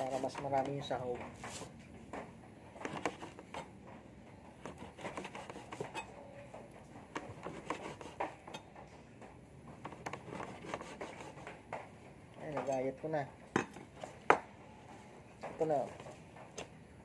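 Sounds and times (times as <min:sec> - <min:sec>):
knife chopping on board: 0:02.2 - 0:03.7, 0:04.6 - 0:06.0, 0:07.1 - 0:08.6, 0:09.7 - 0:11.9.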